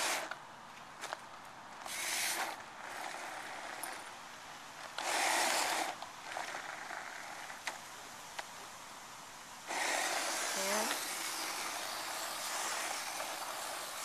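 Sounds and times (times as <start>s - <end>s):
robot tyres rasping on concrete: 0.0s - 0.4s, 1.8s - 4.1s, 4.8s - 7.8s, 9.6s - 14.0s.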